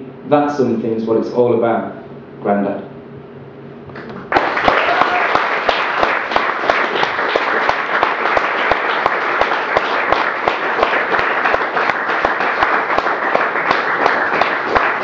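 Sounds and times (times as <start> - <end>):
audience applauding: 4.1 - 15.0.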